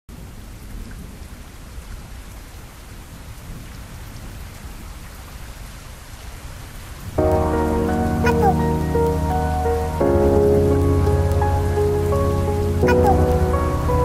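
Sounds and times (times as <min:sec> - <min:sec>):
rain hissing: 0:06.2 - 0:14.0.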